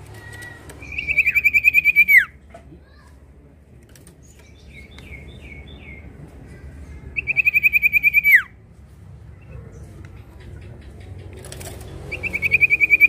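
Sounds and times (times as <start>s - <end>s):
bird singing falling notes and trill: 0.0s - 2.4s, 11.8s - 13.0s.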